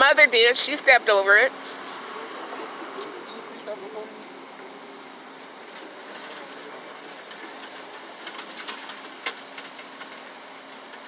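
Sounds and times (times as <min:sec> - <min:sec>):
small metallic clicks and rattles: 0:05.7 - 0:11.0.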